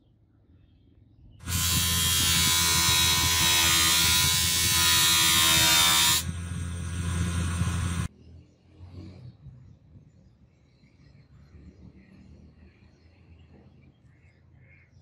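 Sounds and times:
bench grinder motor humming: 0:01.4 - 0:08.1
blade grinding hiss: 0:01.4 - 0:08.1.

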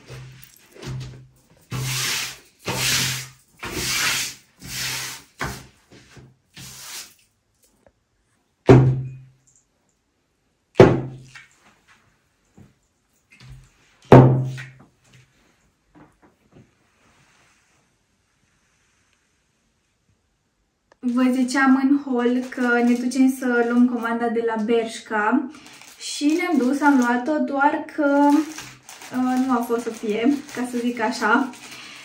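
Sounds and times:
fabric swishing and rubbing: 0:16.5 - 0:19.7.

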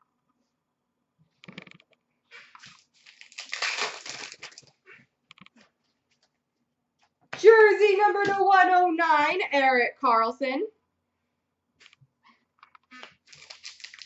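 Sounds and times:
foil wrappers and cards rustling: 0:02.6 - 0:04.8, 0:13.1 - 0:14.0.

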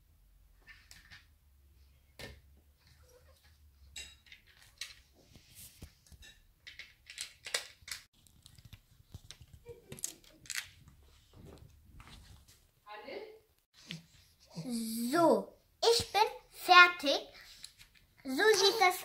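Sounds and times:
plastic bricks clicking together: 0:06.6 - 0:08.1.

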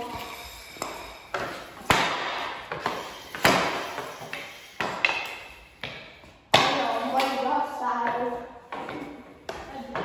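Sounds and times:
hockey sticks striking ball: 0:00.8 - 0:10.0.

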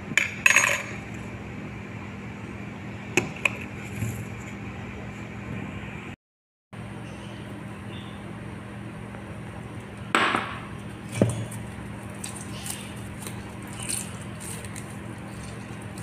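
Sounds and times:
steady low hum: 0:00.0 - 0:06.2, 0:06.8 - 0:16.0
wet squishes of rubbing chicken: 0:10.9 - 0:16.0.

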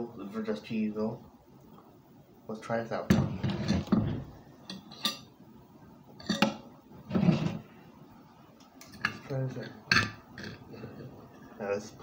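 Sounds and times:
plate knocking and clinking: 0:06.2 - 0:07.5.

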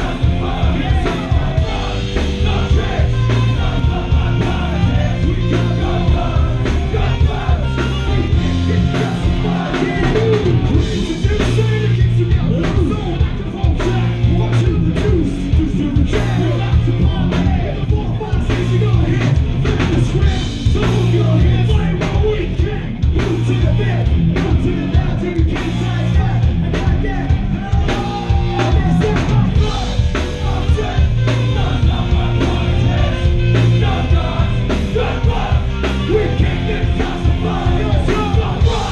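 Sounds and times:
saxophone: 0:00.0 - 0:11.2, 0:27.7 - 0:38.9
live rock band: 0:00.0 - 0:38.9
shouted vocals: 0:00.0 - 0:38.9.

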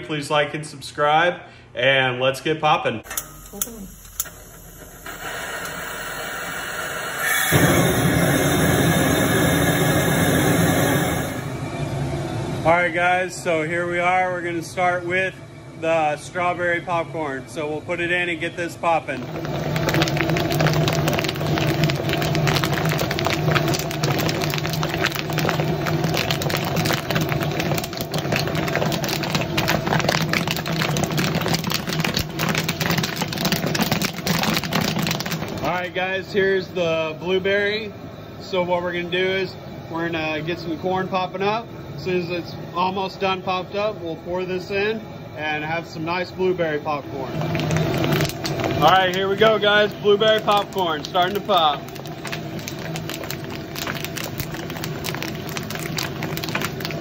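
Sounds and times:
mechanical hum: 0:00.0 - 0:57.0
popcorn popping: 0:03.1 - 0:11.6, 0:18.9 - 0:36.0, 0:47.1 - 0:57.0
gas flame rushing: 0:03.1 - 0:12.7
gas burner hissing: 0:03.1 - 0:12.8, 0:18.4 - 0:57.0.

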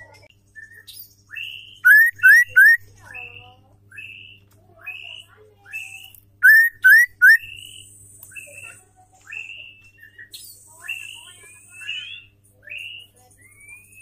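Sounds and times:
bird whistling and chirping: 0:00.5 - 0:02.8, 0:05.0 - 0:14.0.

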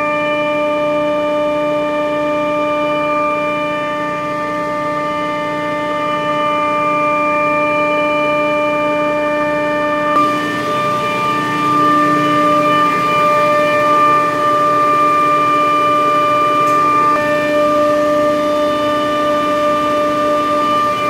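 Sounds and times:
chiller compressor whining: 0:00.0 - 0:21.0.

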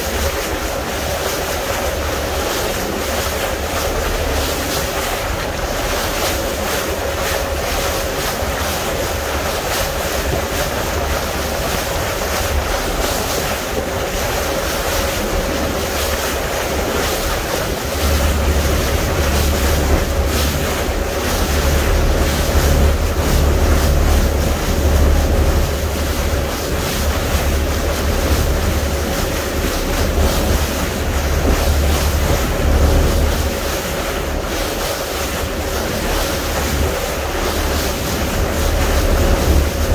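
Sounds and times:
water rushing along hull: 0:00.0 - 0:39.9
wind buffeting microphone: 0:00.0 - 0:39.9
engine hum: 0:10.6 - 0:39.9.

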